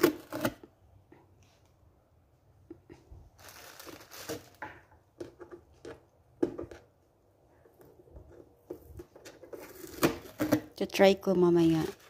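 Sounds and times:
plastic packaging crinkling: 0:03.4 - 0:04.6.

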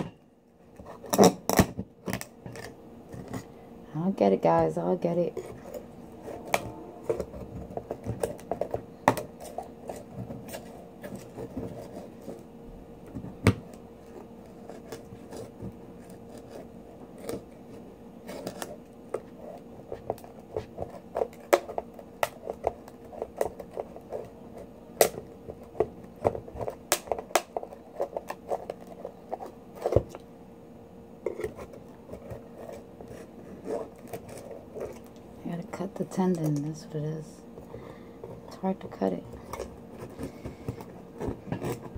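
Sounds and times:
knife scraping oyster shell: 0:31.3 - 0:35.1, 0:41.2 - 0:41.9.

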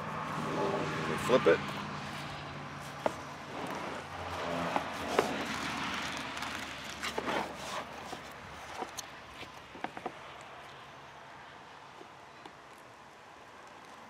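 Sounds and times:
knife scraping on plastic cutting board: 0:07.0 - 0:08.9.

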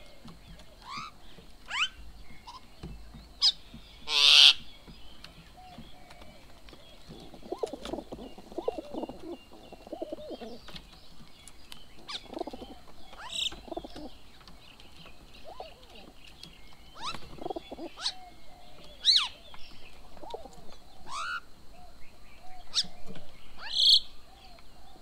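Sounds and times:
pigeons cooing: 0:05.5 - 0:10.8, 0:12.0 - 0:14.2, 0:15.4 - 0:16.2, 0:16.9 - 0:25.0.

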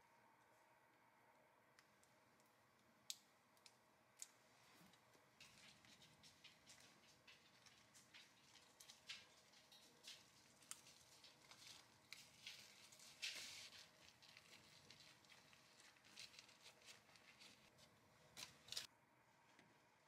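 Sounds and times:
tortilla wrap rustling and crackling: 0:04.6 - 0:18.9.

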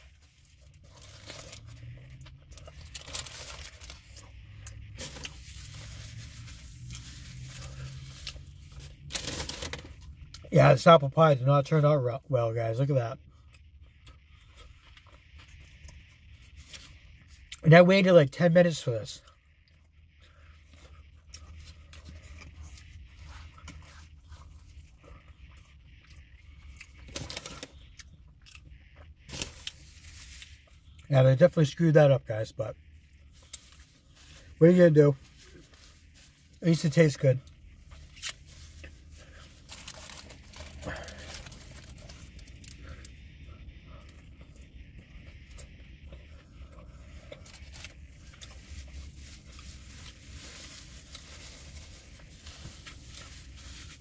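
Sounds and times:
paper wrapper crinkling and tearing: 0:00.0 - 0:04.3, 0:05.0 - 0:10.1, 0:27.0 - 0:27.8, 0:38.1 - 0:42.8, 0:47.4 - 0:54.0
steady low hum: 0:00.0 - 0:54.0.

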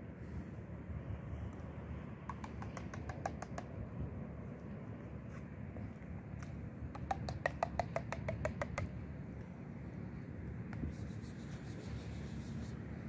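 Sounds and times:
low steady rumble: 0:00.0 - 0:13.0
rapid sharp pitched taps: 0:02.2 - 0:03.7, 0:07.0 - 0:08.9.

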